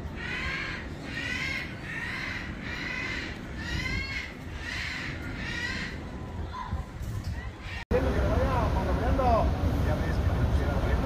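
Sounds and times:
bird harsh cawing calls: 0:00.0 - 0:06.2.

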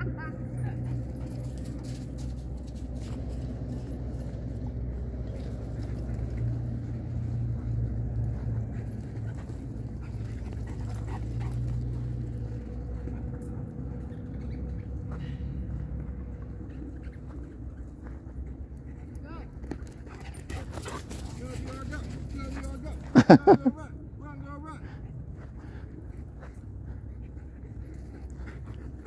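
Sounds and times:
steady low rumble: 0:00.0 - 0:21.1
dogs running and playing: 0:00.0 - 0:24.2, 0:24.8 - 0:29.0.

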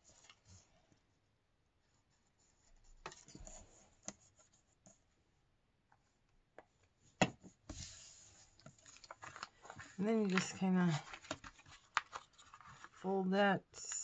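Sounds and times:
paper rubbing and rustling: 0:07.7 - 0:13.1.

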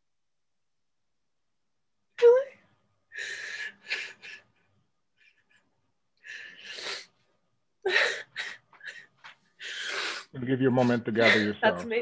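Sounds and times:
woman sobbing and gasping: 0:03.1 - 0:07.2, 0:07.8 - 0:12.0.

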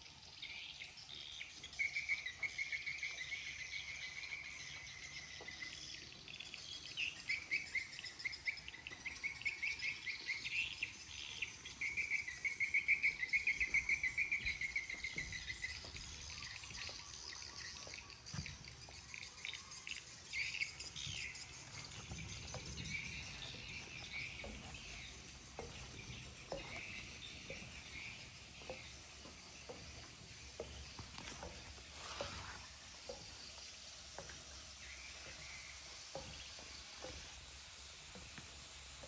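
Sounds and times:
birds chirping: 0:00.0 - 0:39.0
insects chirping: 0:01.2 - 0:39.0
footsteps on metal stairs: 0:21.6 - 0:38.6.

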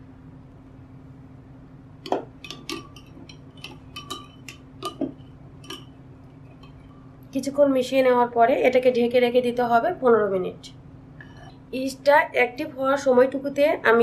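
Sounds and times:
spoon clinking against glass: 0:02.4 - 0:05.9.

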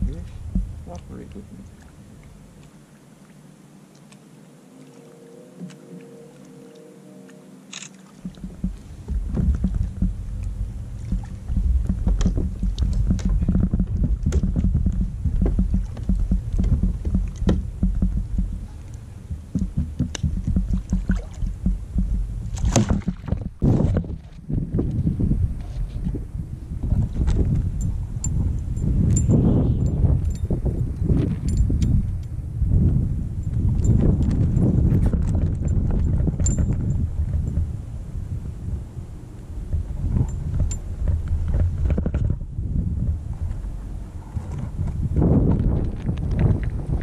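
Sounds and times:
knocks and splashes: 0:00.0 - 0:02.3, 0:07.9 - 0:25.1, 0:32.8 - 0:37.7, 0:39.7 - 0:42.5
rumble of wind and water: 0:00.0 - 0:47.0.

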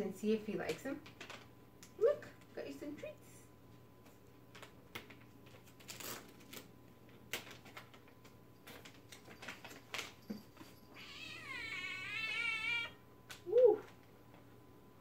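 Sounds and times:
plastic pouch crinkling: 0:04.5 - 0:10.3
cat meowing: 0:11.0 - 0:13.0.

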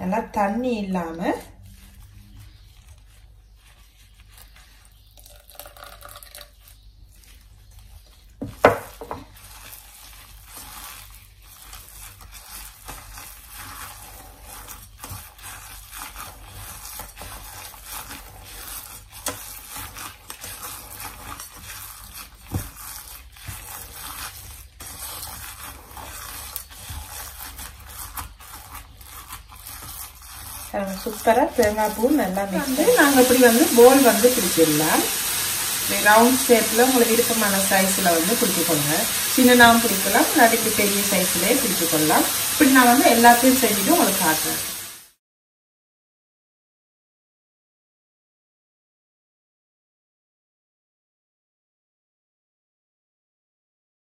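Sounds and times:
paste scraping against metal pot: 0:09.0 - 0:44.9.

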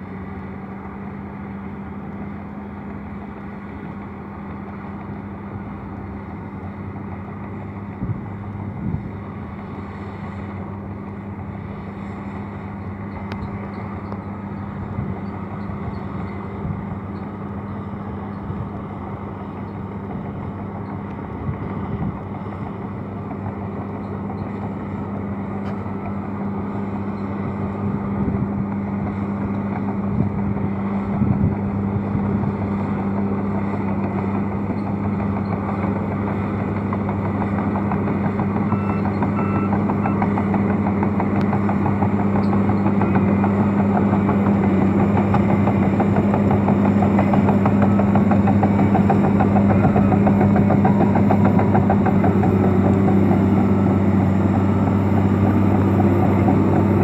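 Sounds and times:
bulldozer diesel engine: 0:00.0 - 0:57.0.

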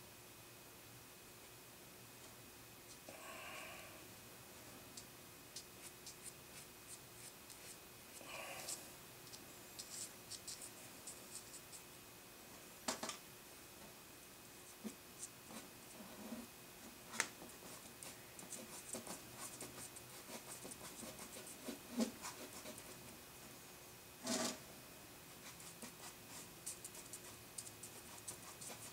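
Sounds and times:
drawing tool scratching paper: 0:17.1 - 0:23.0, 0:25.4 - 0:28.9.

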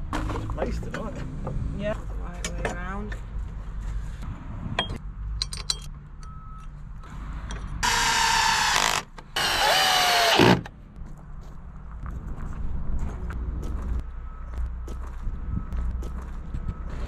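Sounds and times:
cordless drill driving a screw: 0:07.8 - 0:10.7.

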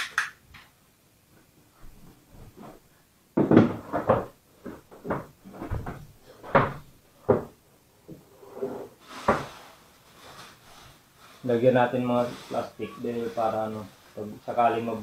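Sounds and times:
knocks and clacks on wooden floor: 0:03.4 - 0:07.6.

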